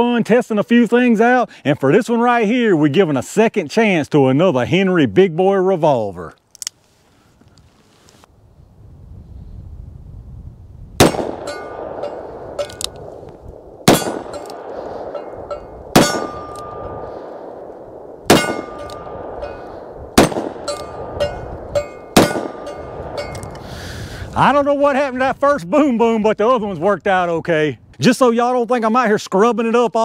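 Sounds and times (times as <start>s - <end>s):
gunshots: 11.0s - 12.9s, 13.8s - 15.3s, 15.9s - 21.3s, 22.0s - 23.2s
metallic ringing and clangs: 11.3s - 13.0s, 13.9s - 17.0s, 18.3s - 19.8s, 20.5s - 23.6s.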